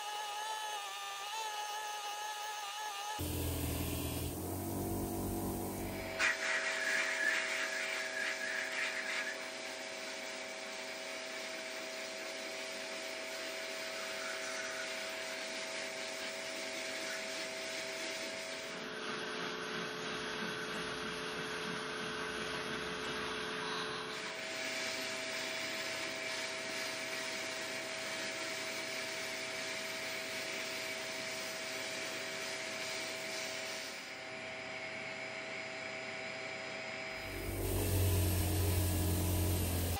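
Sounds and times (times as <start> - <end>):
power tool motor hum: 0.0 - 6.4, 37.1 - 39.9.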